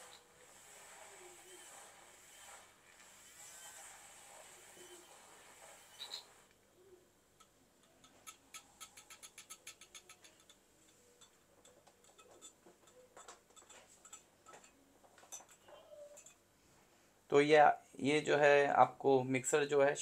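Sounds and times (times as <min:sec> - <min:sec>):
whisk ticking against glass: 0:07.4 - 0:16.4.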